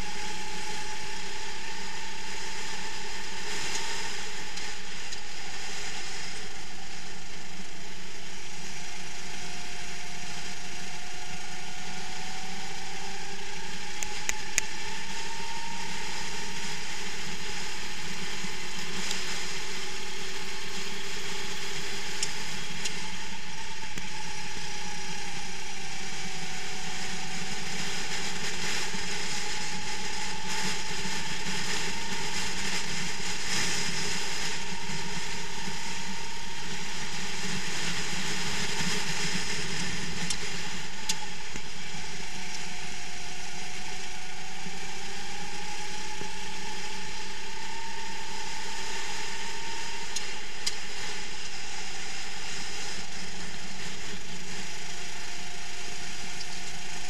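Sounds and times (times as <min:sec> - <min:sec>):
kart engine racing: 0:00.0 - 0:57.0
road noise: 0:00.0 - 0:57.0.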